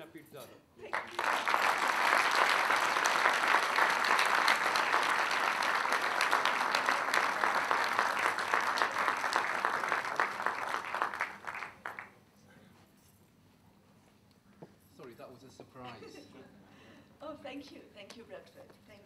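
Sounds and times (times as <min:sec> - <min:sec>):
audience applauding: 0:00.9 - 0:12.2.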